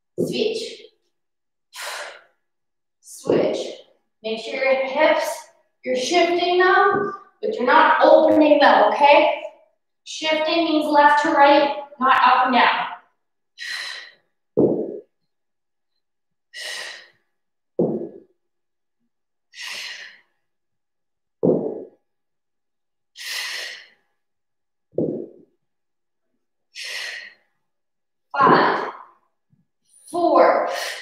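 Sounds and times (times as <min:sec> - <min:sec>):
woman breathing heavily: 0:01.7 - 0:02.4, 0:13.6 - 0:15.1, 0:16.5 - 0:18.2, 0:19.5 - 0:20.5, 0:23.2 - 0:24.1, 0:26.7 - 0:27.6, 0:30.6 - 0:31.0.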